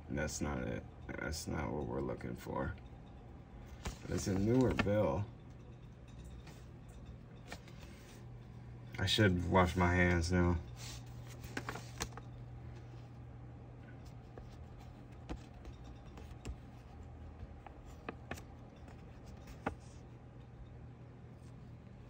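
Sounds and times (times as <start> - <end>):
steady low hum: 0.0 - 22.0
paper bills rustling: 3.7 - 5.1, 10.7 - 13.0, 14.1 - 20.1.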